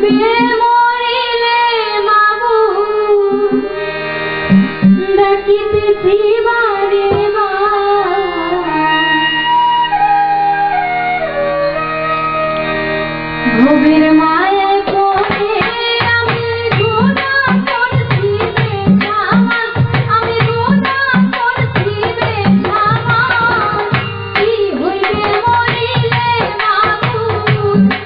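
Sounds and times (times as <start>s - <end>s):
woman singing into a microphone: 0.0s - 4.0s, 5.0s - 9.9s, 13.4s - 28.0s
instrumental accompaniment: 0.0s - 28.0s
drum strokes: 4.5s - 5.0s.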